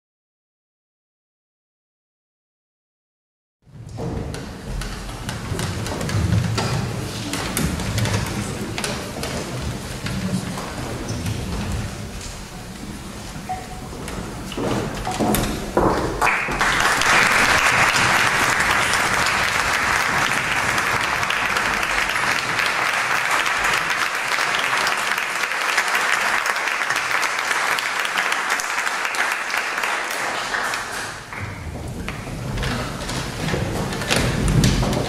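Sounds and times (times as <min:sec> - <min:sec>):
audience applauding: 0:16.2 - 0:31.6.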